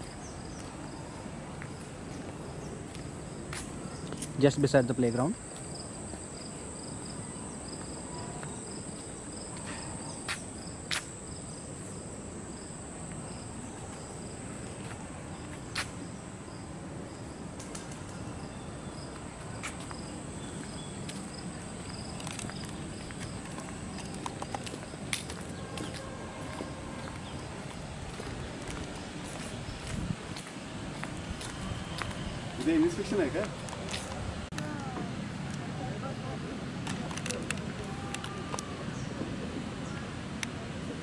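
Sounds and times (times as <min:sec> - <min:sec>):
lower pulsing insect chirp: 0:00.0 - 0:33.7
insects trilling: 0:03.3 - 0:17.4, 0:18.3 - 0:25.7.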